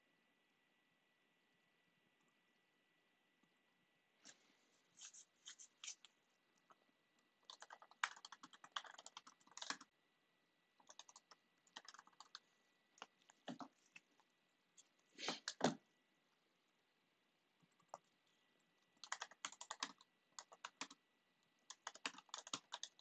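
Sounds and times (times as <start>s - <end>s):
computer keyboard typing: 7.4s - 9.9s, 10.8s - 12.4s, 15.4s - 15.8s, 19.0s - 21.0s, 21.6s - 23.0s.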